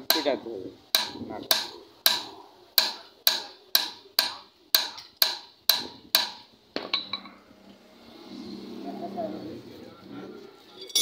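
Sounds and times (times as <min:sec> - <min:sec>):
hammer striking metal hub: 0:00.0 - 0:07.4.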